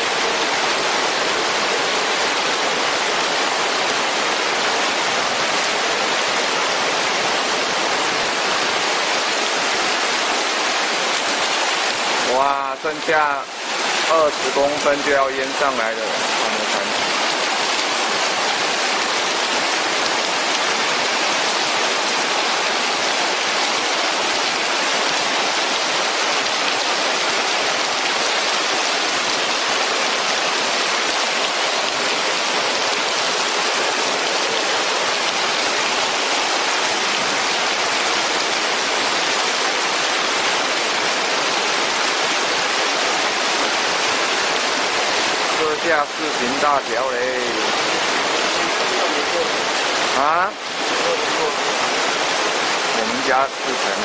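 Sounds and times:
floodwater rushing in ditch: 0.0 - 54.0
heavy rain falling: 0.0 - 54.0.

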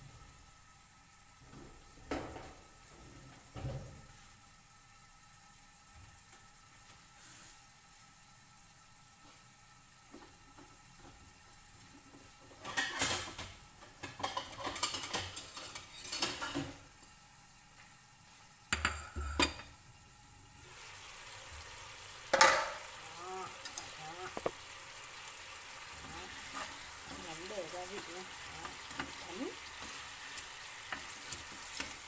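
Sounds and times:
chicken wings sizzling in a wok: 0.0 - 32.0
cookware and utensils clattering: 12.4 - 16.8, 18.7 - 19.8, 22.3 - 24.6.

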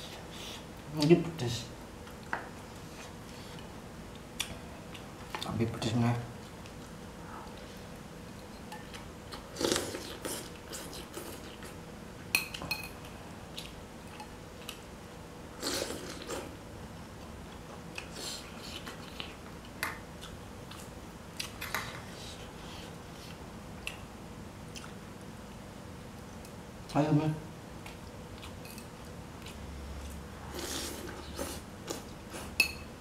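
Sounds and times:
person chewing: 8.8 - 11.8, 13.5 - 14.8, 15.6 - 16.6, 17.5 - 24.0, 24.7 - 25.1, 27.8 - 32.6.

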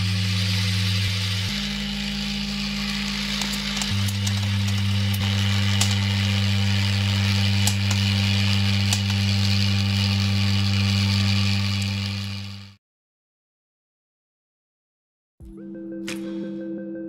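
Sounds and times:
loud electric hum: 0.0 - 12.8.

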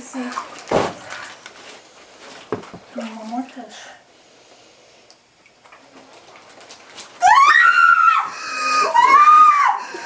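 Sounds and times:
woman wailing: 7.2 - 10.0.

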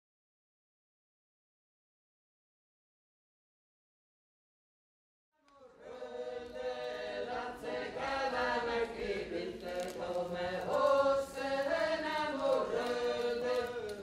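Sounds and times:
folk group singing unaccompanied: 5.5 - 14.0.

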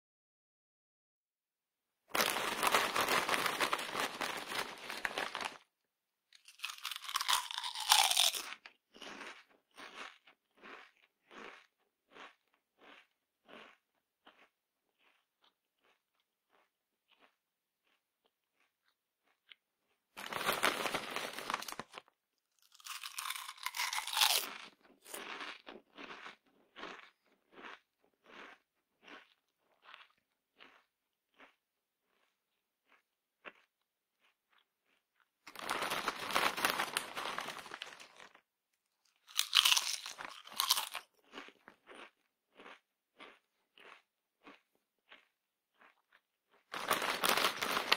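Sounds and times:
potato chips crackling: 2.1 - 5.6, 6.4 - 9.2, 20.2 - 25.4, 35.5 - 38.4, 39.2 - 42.0, 46.7 - 47.9
person chewing crunchy chips: 2.1 - 5.7, 6.3 - 47.9
loud crunching bite: 2.2 - 5.6, 6.4 - 19.6, 20.2 - 32.3, 39.1 - 47.9.

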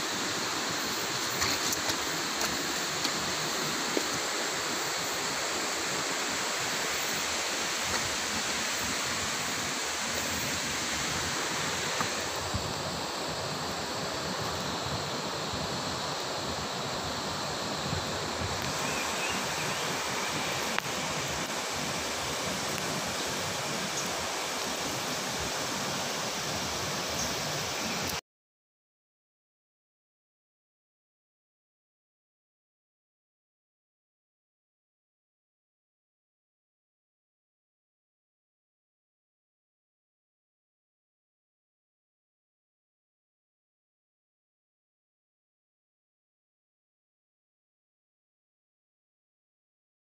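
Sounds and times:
river water rushing over rocks: 0.0 - 28.2.

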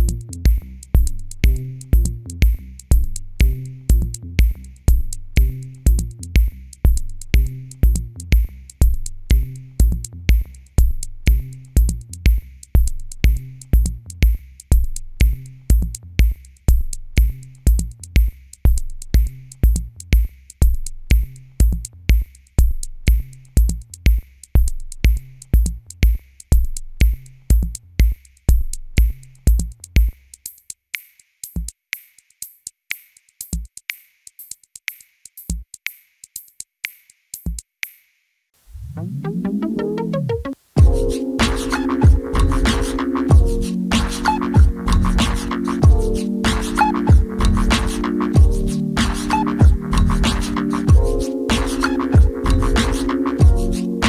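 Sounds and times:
bass line: 0.0 - 24.0, 38.7 - 54.0
drum machine beat: 0.0 - 38.1, 39.0 - 54.0.

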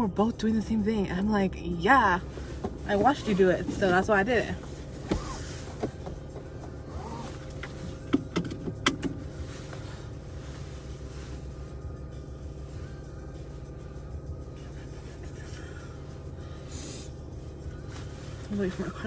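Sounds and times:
car engine idling: 0.0 - 19.0
sharp clicks and knocks: 7.6 - 9.2.

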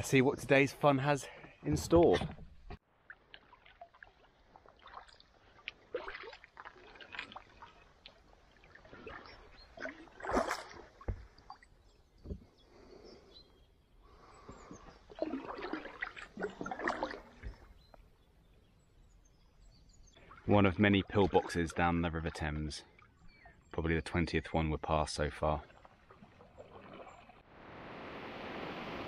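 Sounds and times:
paddle splashing in water: 2.3 - 11.8, 14.4 - 18.0, 25.6 - 29.0.

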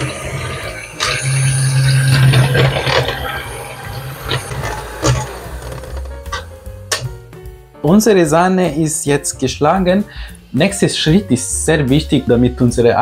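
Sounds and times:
electric hand mixer whirring: 0.0 - 6.4.

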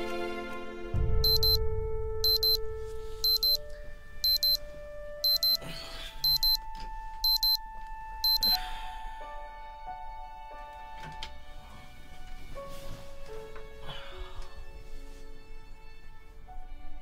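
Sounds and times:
soft background music: 0.0 - 17.0
digital watch alarm beeping: 1.2 - 1.6, 2.2 - 2.6, 3.2 - 3.6, 4.2 - 4.6, 5.2 - 5.6, 6.2 - 6.6, 7.2 - 7.6, 8.2 - 8.6
bedding rustling: 12.0 - 13.8.

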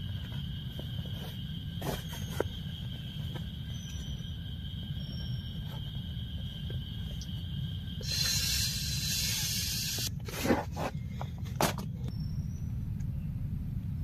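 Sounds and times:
air hissing through a valve: 8.0 - 10.1.

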